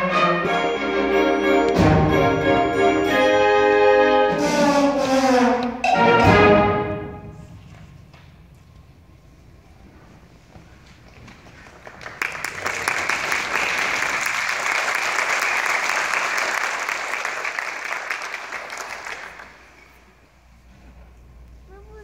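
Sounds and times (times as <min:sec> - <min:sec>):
small audience applauding: 0:11.4 - 0:20.0.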